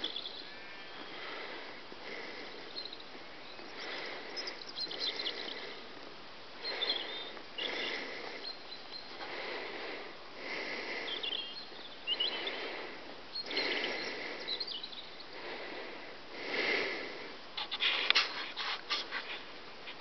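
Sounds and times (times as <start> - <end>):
faint bird chirps: 0.0 - 1.3, 2.4 - 5.9, 6.6 - 9.2, 11.0 - 12.7, 13.3 - 15.4
clicks and rustles: 17.6 - 20.0.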